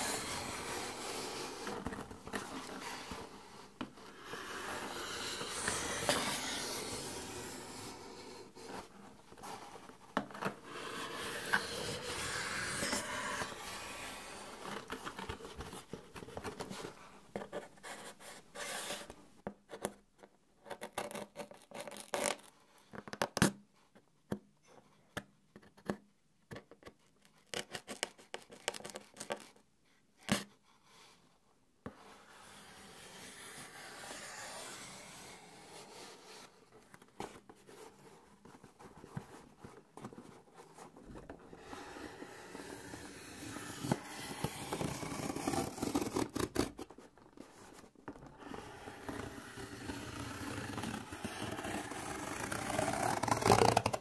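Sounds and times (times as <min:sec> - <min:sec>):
knife blade scraping cardboard: 0:00.0 - 0:09.8, 0:10.4 - 0:15.8, 0:32.0 - 0:36.6, 0:41.6 - 0:47.8.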